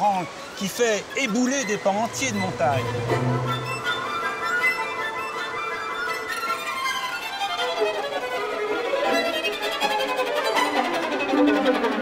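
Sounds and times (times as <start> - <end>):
violin melody: 0.0 - 12.0
low sustained notes: 0.7 - 8.7.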